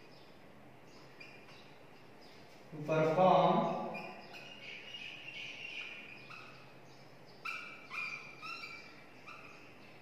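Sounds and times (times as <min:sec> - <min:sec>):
marker squeaking on whiteboard: 0:01.0 - 0:06.8, 0:07.4 - 0:10.0.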